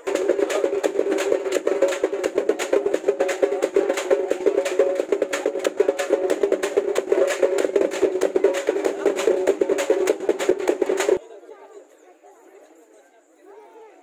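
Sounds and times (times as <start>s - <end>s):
melody over fast percussion: 0.0s - 11.2s.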